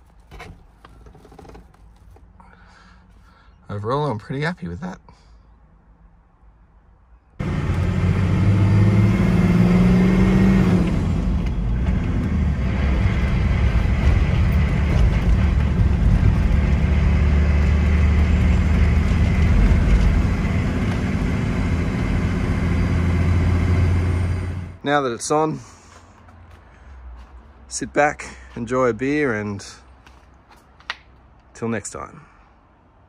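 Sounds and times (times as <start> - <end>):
road noise inside vehicle: 0.0 - 31.6
diesel engine accelerating: 7.4 - 24.8.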